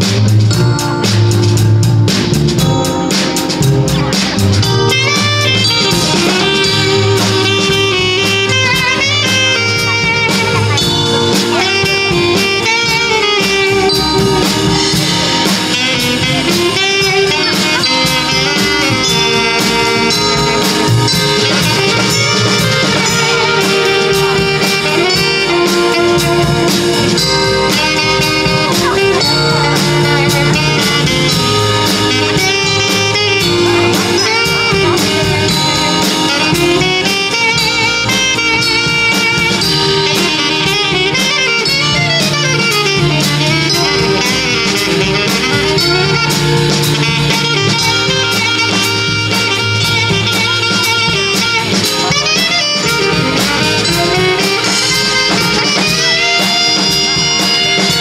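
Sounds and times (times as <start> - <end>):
bass: 0.0 - 58.0
drum kit with cymbals: 0.0 - 58.0
keyboard: 0.0 - 58.0
saxophone melody: 0.0 - 58.0.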